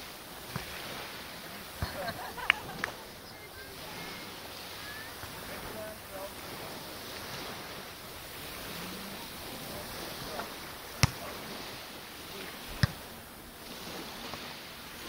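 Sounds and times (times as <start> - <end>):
background hiss: 0.0 - 15.0
hands slapping volleyball: 1.8 - 3.0, 11.0 - 11.3, 12.8 - 13.0.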